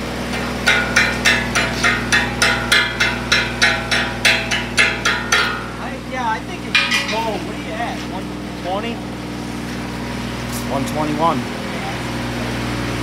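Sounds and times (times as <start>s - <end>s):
low machine hum: 0.0s - 13.0s
hammer striking steel: 0.3s - 6.0s, 6.6s - 7.8s.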